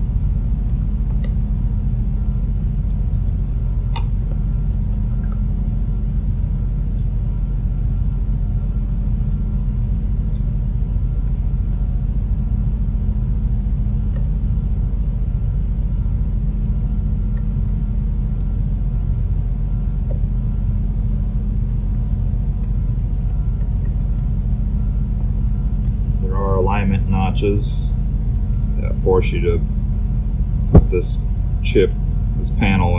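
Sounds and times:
machinery humming and rumbling: 0:00.0 - 0:32.9.

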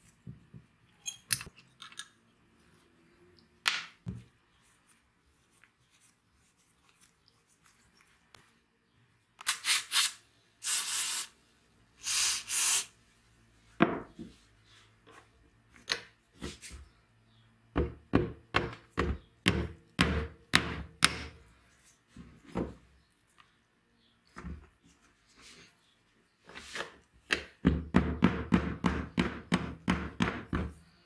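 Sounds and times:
aerosol spray hissing: 0:09.5 - 0:11.4, 0:12.0 - 0:12.9.

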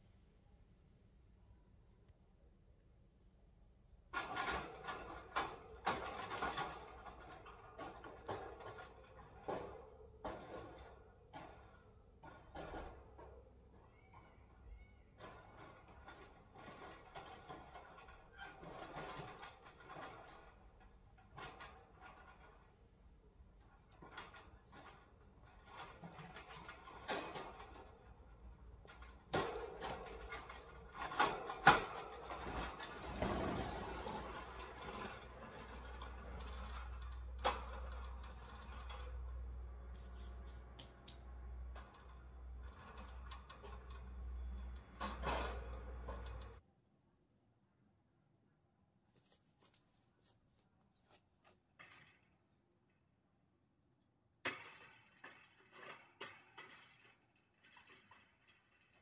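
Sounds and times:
sharp knocks and clatter: 0:04.1 - 0:22.9, 0:23.6 - 0:40.0, 0:40.7 - 0:46.6, 0:54.4 - 0:59.0
metal wire clicking and rattling: 0:15.2 - 0:46.6, 0:54.4 - 0:59.0
rustling noise: 0:32.2 - 0:43.2, 0:49.1 - 0:51.8.

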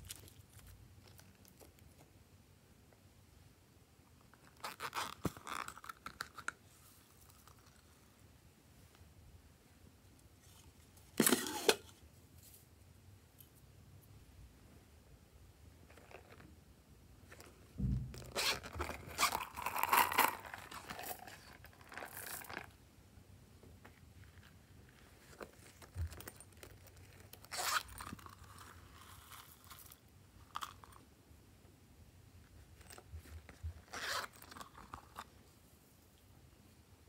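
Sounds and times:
soft handling of purses: 0:04.2 - 0:08.2, 0:15.8 - 0:16.6, 0:17.2 - 0:22.8, 0:23.6 - 0:31.0, 0:32.4 - 0:36.3
zippers pulled open: 0:18.2 - 0:21.4, 0:27.4 - 0:28.4, 0:33.8 - 0:35.2.

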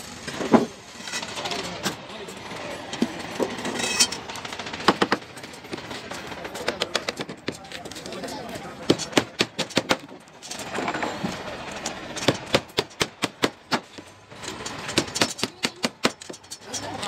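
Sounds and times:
people talking: 0:00.5 - 0:04.2, 0:05.0 - 0:09.6, 0:10.7 - 0:12.0, 0:14.4 - 0:17.0.

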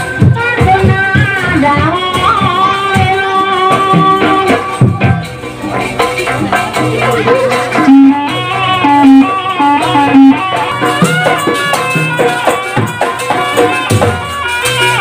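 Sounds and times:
drums and percussion: 0:00.0 - 0:15.0.

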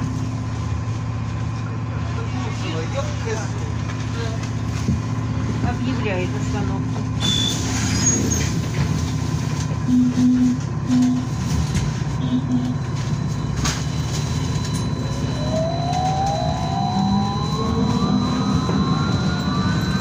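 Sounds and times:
trolleybus cabin rumble and hum: 0:00.0 - 0:20.0
electric motor whine rising: 0:15.1 - 0:20.0.

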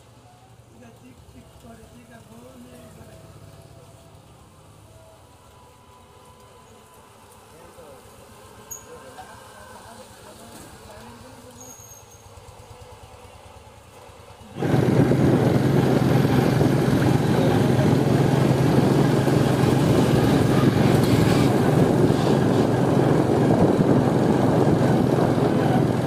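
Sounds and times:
motorcycle engine running: 0:12.1 - 0:26.0.

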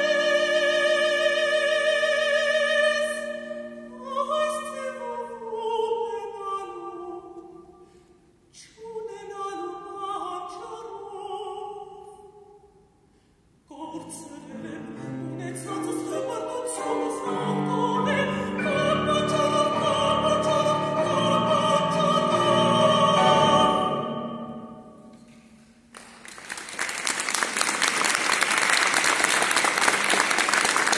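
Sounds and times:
woman singing: 0:00.0 - 0:07.6, 0:08.6 - 0:12.5, 0:13.7 - 0:24.5
grand piano accompaniment: 0:14.4 - 0:30.9
audience applause: 0:25.9 - 0:30.9.

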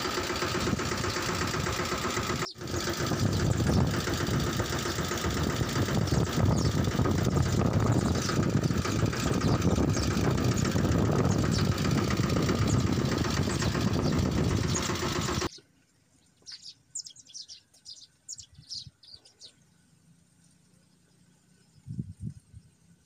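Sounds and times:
loud engine-like rumble: 0:00.0 - 0:15.5
small birds chirping: 0:00.0 - 0:22.9.

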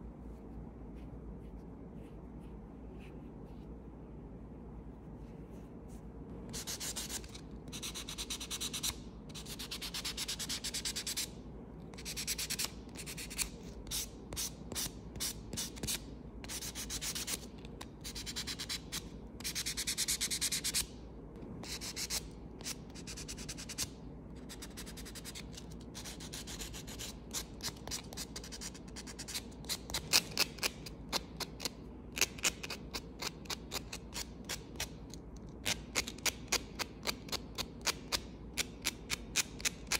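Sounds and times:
nail buffer scratching nails: 0:06.5 - 0:11.4, 0:12.0 - 0:20.8, 0:21.6 - 0:39.9.

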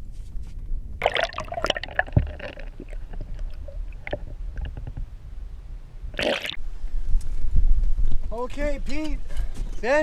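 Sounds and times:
underwater splashing and bubbling: 0:01.0 - 0:05.0, 0:06.1 - 0:06.6.

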